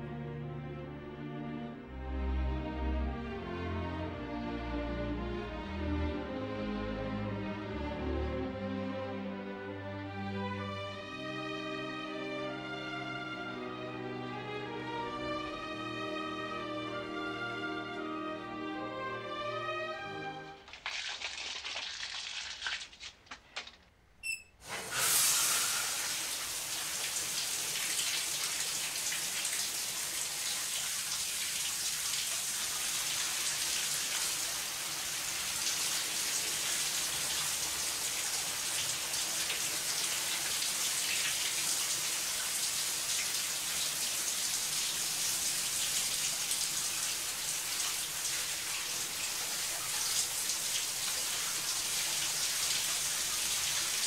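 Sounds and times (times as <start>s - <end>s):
shower water spraying on tile: 20.6s - 23.6s, 24.6s - 54.0s
brief high squeak: 24.2s - 25.7s.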